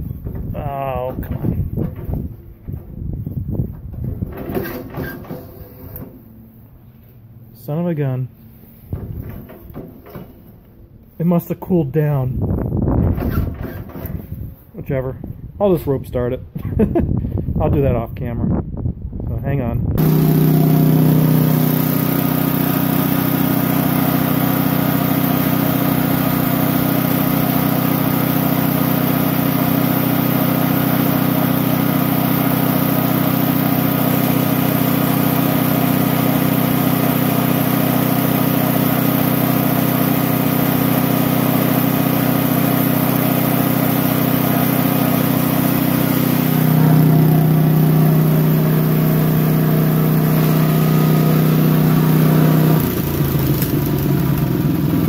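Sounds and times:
single-cylinder engine running: 20.0 - 55.0.

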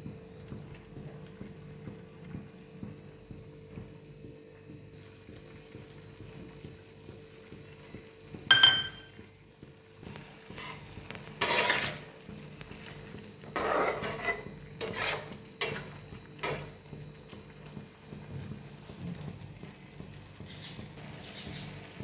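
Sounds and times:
spatula scraping steel pan: 11.4 - 12.1, 13.5 - 15.9.

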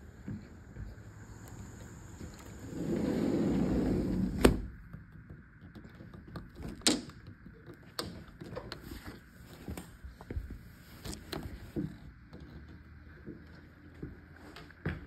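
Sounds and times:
sliding door rolling on track: 1.7 - 4.6.

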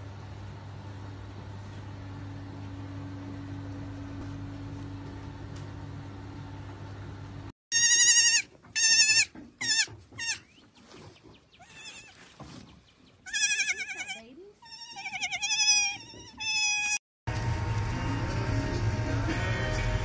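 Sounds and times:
steady low hum: 0.0 - 7.5
baby goat bleating: 7.7 - 10.5, 11.6 - 12.3, 13.2 - 17.0.

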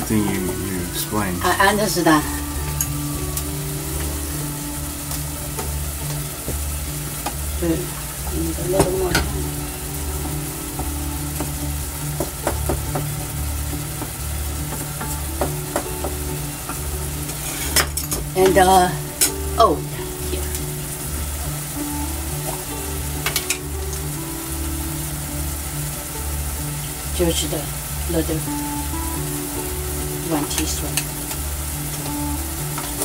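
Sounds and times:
steady low hum: 0.0 - 33.0
vegetables sizzling in hot oil: 0.0 - 33.0
utensil scraping a pan: 17.2 - 18.1.

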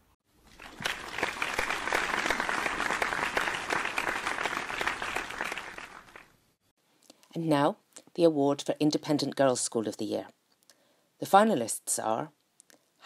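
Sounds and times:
crowd applause: 0.5 - 6.3.

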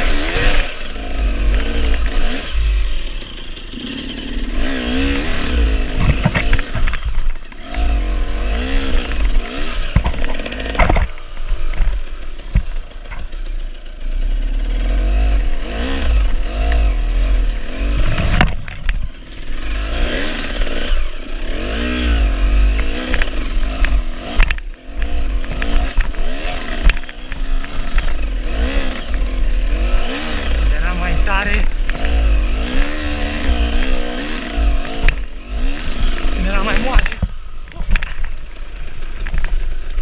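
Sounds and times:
knocks and clatter from bike: 0.0 - 2.4, 5.3 - 8.0, 8.9 - 16.9, 17.9 - 19.8, 22.6 - 30.4, 31.3 - 40.0
motorcycle engine revving: 0.0 - 40.0.

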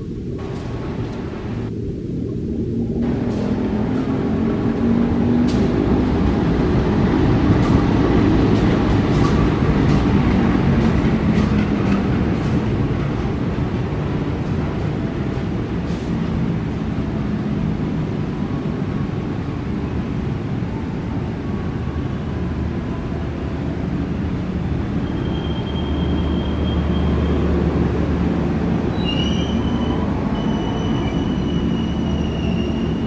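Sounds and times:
diesel locomotive engine passing: 0.0 - 33.0
train coaches wheel clicks: 0.4 - 1.6, 5.4 - 16.8.

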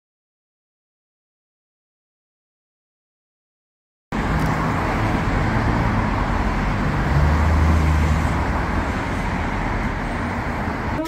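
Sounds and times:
street traffic: 4.1 - 11.0
vehicle engine hum: 4.1 - 11.0.

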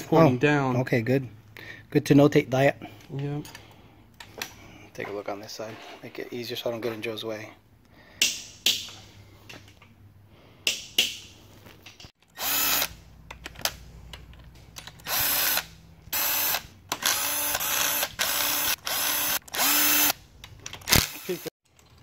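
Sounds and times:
power driver spinning: 12.2 - 13.0, 14.9 - 21.5.

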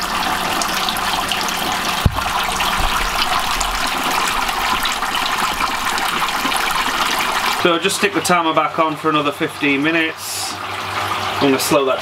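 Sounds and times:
dull knock: 2.0 - 3.4.

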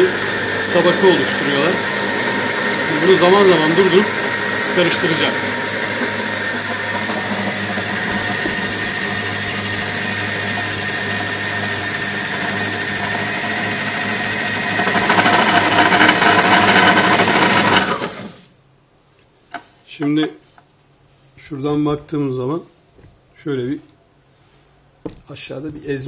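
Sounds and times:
food processor grinding peanuts: 0.0 - 18.4.

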